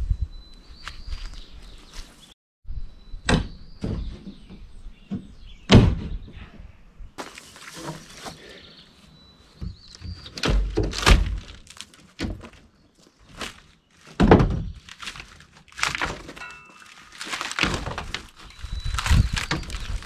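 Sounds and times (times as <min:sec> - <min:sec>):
heavy thunks: 0:03.3 - 0:06.4
wood cracking: 0:09.8 - 0:20.0.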